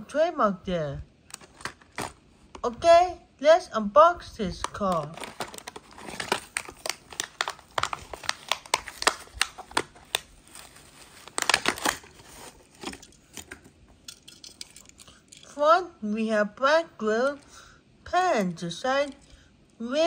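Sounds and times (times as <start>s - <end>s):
cardboard and plastic tearing crackles: 1.3s - 2.2s, 4.8s - 13.7s.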